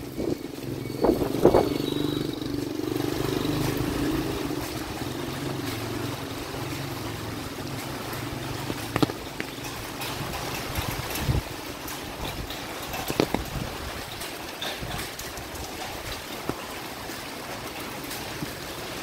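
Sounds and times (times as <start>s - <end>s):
vehicle engine running: 0.0s - 11.4s.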